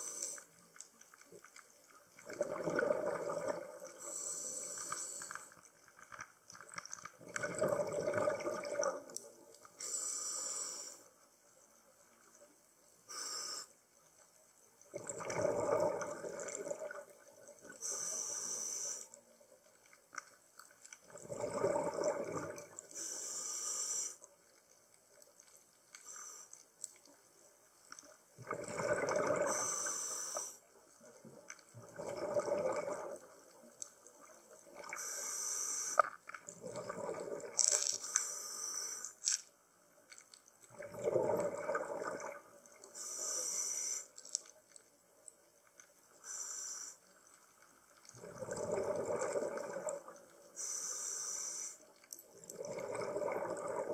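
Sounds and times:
exhaled bubbles rushing underwater: 0:02.2 - 0:04.2, 0:07.2 - 0:09.5, 0:14.9 - 0:17.8, 0:21.0 - 0:22.9, 0:28.4 - 0:29.7, 0:31.2 - 0:35.0, 0:36.5 - 0:37.7, 0:40.7 - 0:42.8, 0:48.0 - 0:50.4, 0:52.3 - 0:53.9
regulator inhalation hiss: 0:04.0 - 0:05.6, 0:09.8 - 0:11.1, 0:13.1 - 0:13.8, 0:17.8 - 0:19.1, 0:22.9 - 0:24.2, 0:29.4 - 0:30.6, 0:35.0 - 0:36.1, 0:38.0 - 0:39.2, 0:43.0 - 0:44.2, 0:46.2 - 0:47.0, 0:50.6 - 0:51.9.

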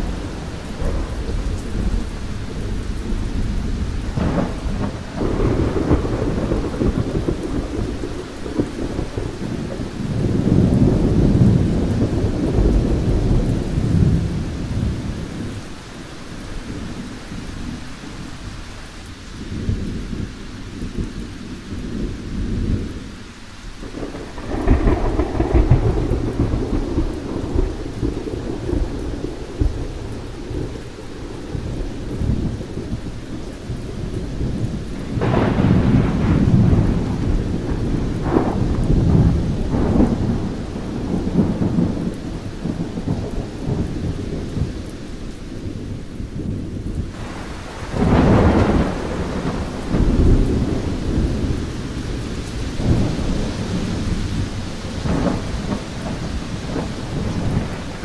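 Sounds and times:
rolling thunder: 0:00.0 - 0:18.4, 0:23.8 - 0:58.0
steady rain: 0:00.0 - 0:58.0.

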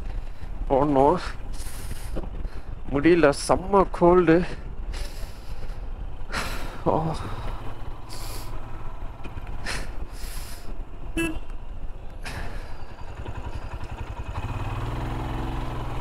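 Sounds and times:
vehicle horn toot: 0:11.1 - 0:11.5
motorcycle engine running: 0:12.8 - 0:16.0.

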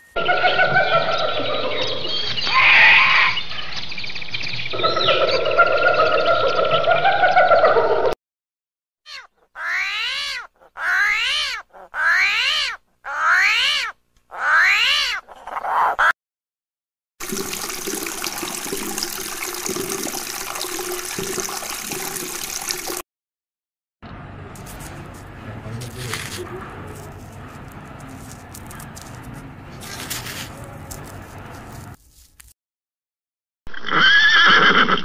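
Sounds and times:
animal calling: 0:00.2 - 0:03.7, 0:04.7 - 0:08.0, 0:09.1 - 0:16.1.

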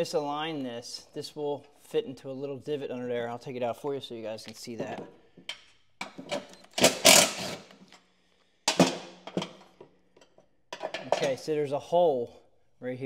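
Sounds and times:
metal parts clattering on metal: 0:10.8 - 0:11.4.

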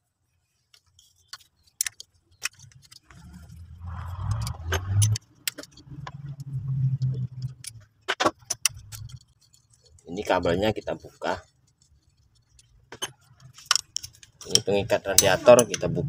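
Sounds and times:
spanner clinking on bolts: 0:04.2 - 0:06.6, 0:07.2 - 0:15.9
low rumble: 0:05.8 - 0:07.8.

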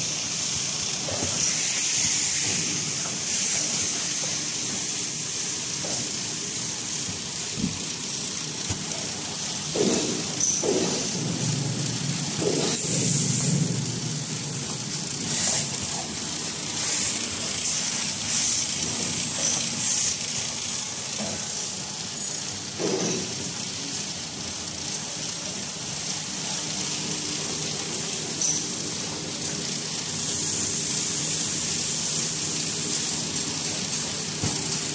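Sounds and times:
packing machine drone and whine: 0:00.0 - 0:34.9.

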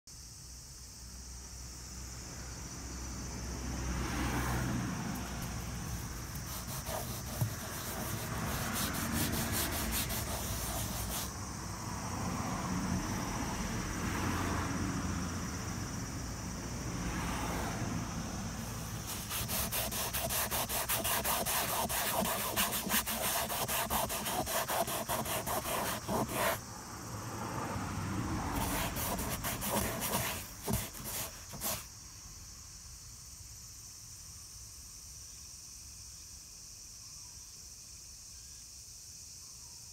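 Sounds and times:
cloth rubbing on plastic panel: 0:06.3 - 0:11.3, 0:19.0 - 0:26.6, 0:28.6 - 0:31.9.

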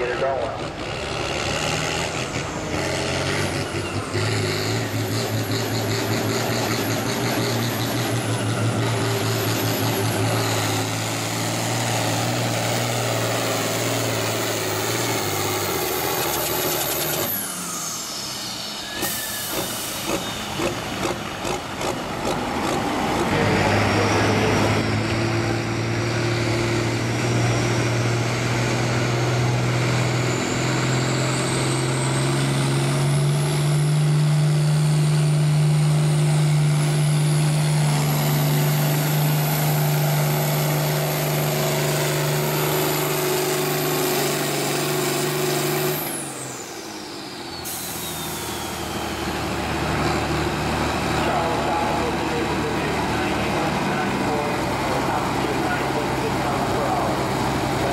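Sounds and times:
tractor diesel engine revving: 0:00.0 - 0:57.9
high turbo whistle: 0:16.7 - 0:20.7, 0:46.6 - 0:49.6.

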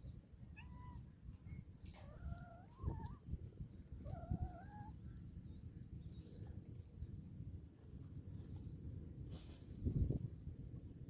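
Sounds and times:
cat yowling: 0:00.6 - 0:01.1.

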